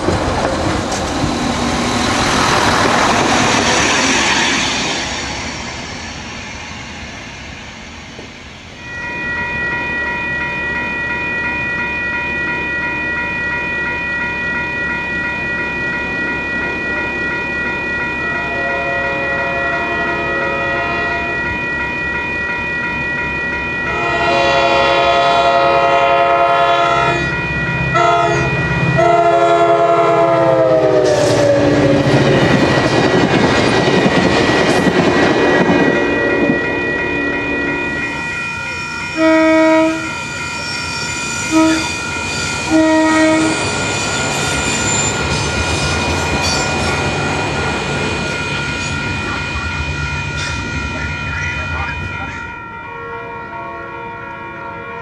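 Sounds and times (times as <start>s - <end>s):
grade-crossing bells ringing: 0.0s - 7.8s, 8.7s - 55.0s
train rumble and wheel clatter: 0.0s - 55.0s
train horn blasts: 18.5s - 21.5s, 23.9s - 31.8s, 39.1s - 40.2s, 41.4s - 43.7s, 52.9s - 55.0s.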